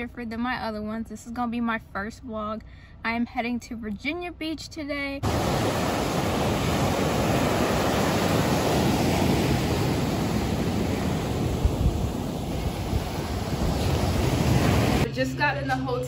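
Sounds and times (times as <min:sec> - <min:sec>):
ocean surf breaking: 0:05.2 - 0:15.1
wind rumbling on microphone: 0:05.2 - 0:15.1.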